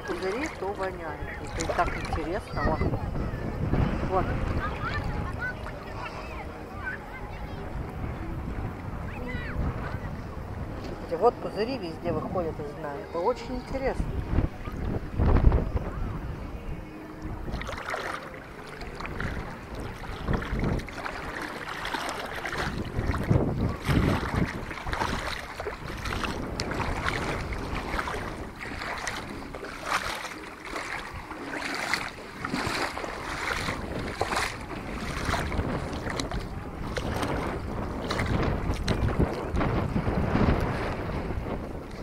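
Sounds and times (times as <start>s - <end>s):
footsteps splashing through water: 0.0s - 2.9s, 17.4s - 41.1s
wind buffeting microphone: 0.0s - 42.0s.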